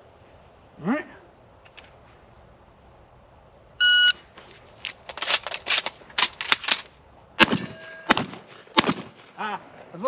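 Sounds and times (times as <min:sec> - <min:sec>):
shells loaded into shotgun: 0:04.4 - 0:07.0
loud shotgun shot: 0:07.4 - 0:09.4.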